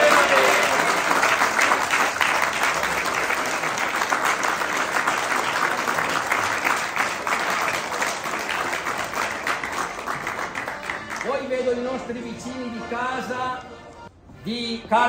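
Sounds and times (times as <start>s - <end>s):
crowd applauding: 0.0s - 11.8s.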